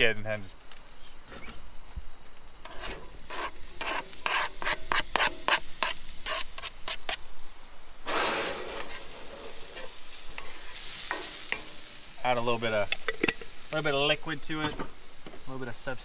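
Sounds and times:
food sizzling: 0.0s - 16.0s
stirring in a skillet: 0.7s - 16.0s
wooden spoon scraping cutting board: 2.7s - 7.2s.

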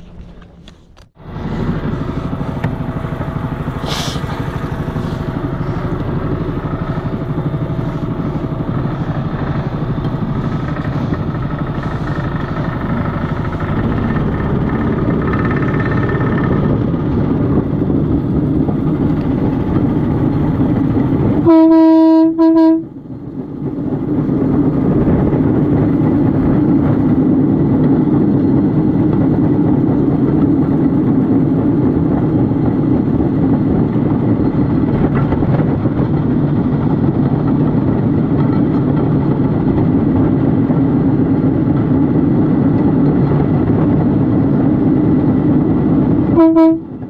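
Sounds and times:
small petrol engine running: 1.2s - 22.0s
horn tooting: 21.4s - 22.9s, 46.3s - 47.0s.

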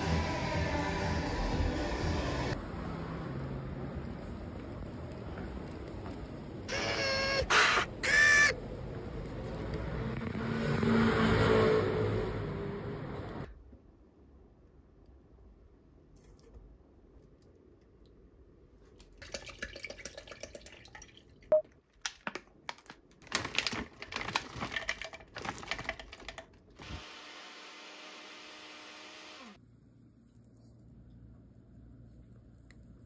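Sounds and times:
frozen berries rattling into plastic jar: 22.7s - 26.5s
plastic bag rustling: 22.9s - 26.2s
blender whirring: 26.8s - 29.6s.

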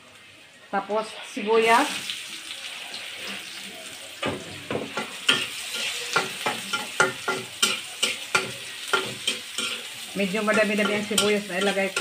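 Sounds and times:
onions sizzling in a wok: 0.0s - 12.0s
spatula scraping a wok: 4.9s - 12.0s.

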